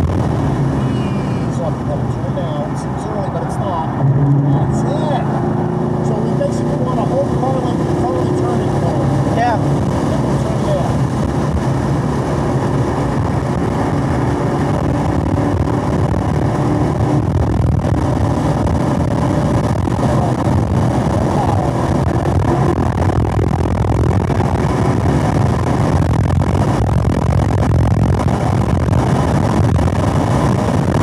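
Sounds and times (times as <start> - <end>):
car engine under full load: 0.0 - 31.0.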